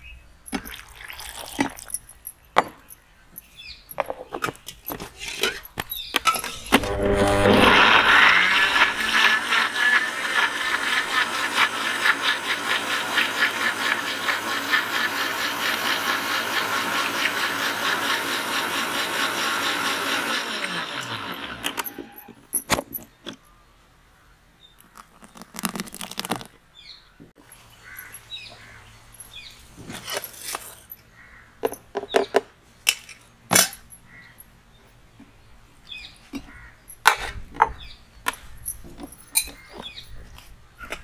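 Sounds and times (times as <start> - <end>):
motor winding down whine: 6.6 - 10.5
mixer grinder blending fruit: 6.6 - 22.3.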